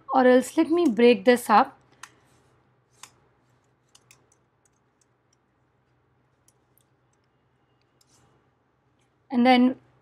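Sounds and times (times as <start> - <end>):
faint computer clicks: 3.9 - 5.5.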